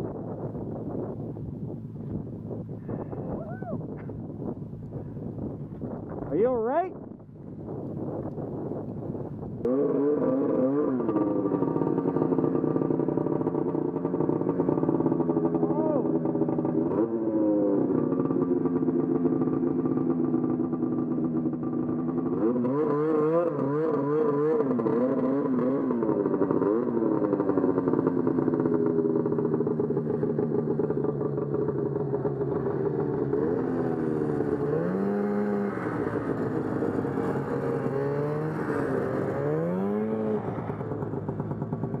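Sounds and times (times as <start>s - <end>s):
two-stroke snowmobile engine revving: 9.6s - 42.0s.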